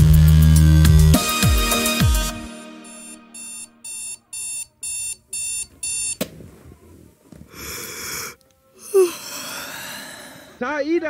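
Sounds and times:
alarm clock beeping: 0:02.6 - 0:06.2.

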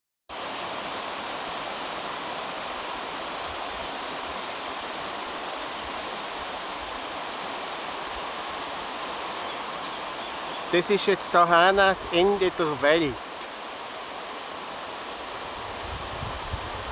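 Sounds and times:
stream rushing over stones: 0:00.3 - 0:16.9.

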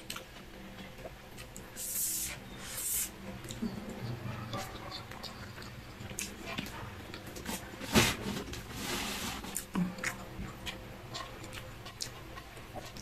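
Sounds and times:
person chewing and lip smacking: 0:03.4 - 0:07.5, 0:09.6 - 0:13.0.

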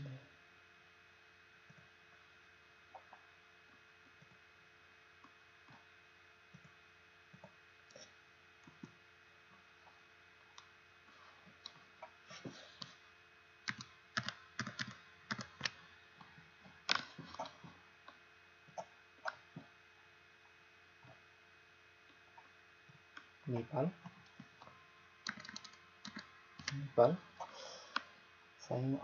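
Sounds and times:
faint steady hum: 0:00.0 - 0:29.0
mouse and keyboard clicks: 0:13.7 - 0:15.8, 0:16.9 - 0:17.5, 0:25.3 - 0:26.8.

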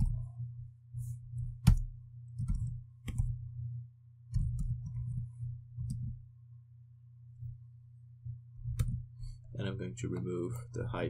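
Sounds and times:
low steady hum: 0:00.0 - 0:11.0
computer keyboard typing: 0:01.6 - 0:03.4, 0:04.3 - 0:05.2.

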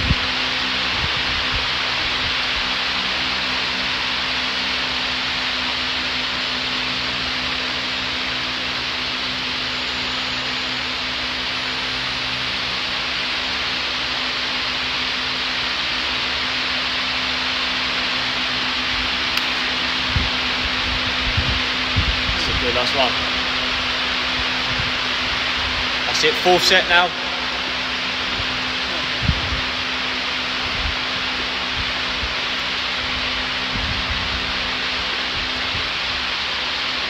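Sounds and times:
fan running: 0:00.0 - 0:37.0.

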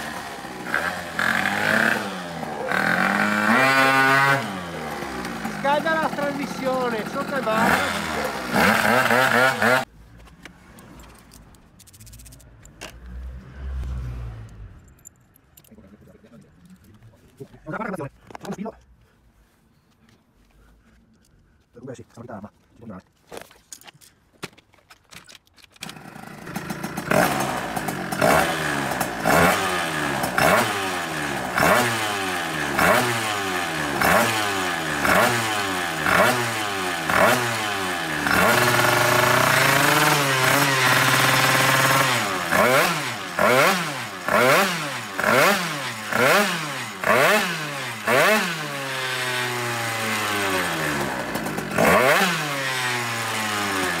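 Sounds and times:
scooter engine revving: 0:00.0 - 0:09.9, 0:25.8 - 0:54.0.

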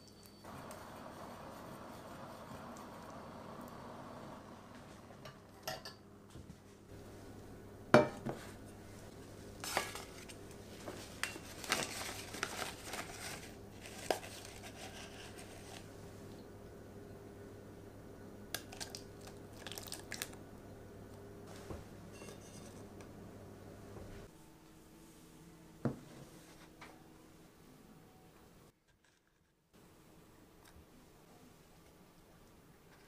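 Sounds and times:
metal cookware clanking: 0:05.2 - 0:06.0, 0:22.1 - 0:22.9
baking paper crinkling: 0:09.6 - 0:15.9, 0:18.6 - 0:20.4.

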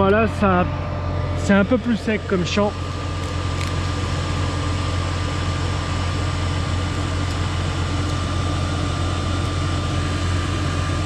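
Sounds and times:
thin steady whine: 0:00.0 - 0:11.0
tractor diesel engine idling: 0:00.0 - 0:11.0.

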